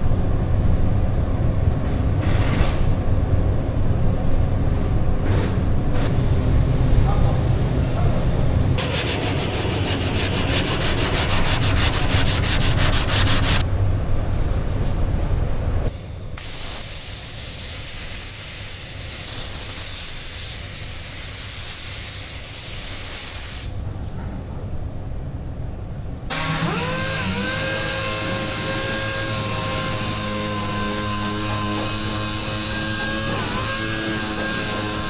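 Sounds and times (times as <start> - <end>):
rapid even rasping: 8.8 - 13.6
spray gun hissing: 8.8 - 13.6, 16.4 - 23.8.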